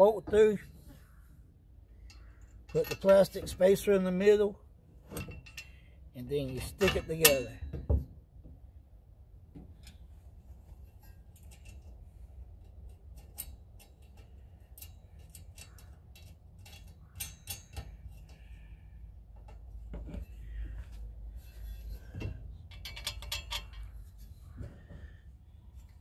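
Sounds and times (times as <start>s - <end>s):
low steady rumble: 0.6s - 26.0s.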